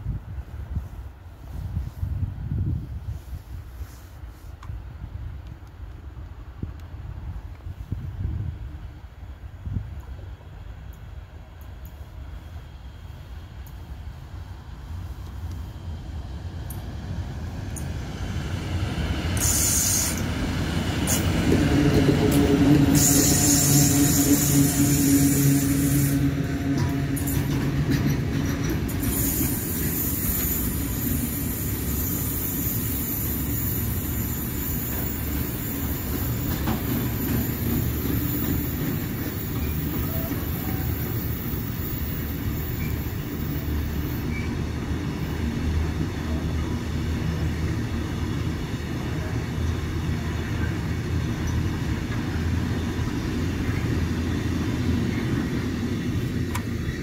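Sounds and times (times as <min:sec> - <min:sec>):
train wheels rumbling on rail: 0:00.0 - 0:57.0
high hiss: 0:11.9 - 0:26.6, 0:28.8 - 0:44.5.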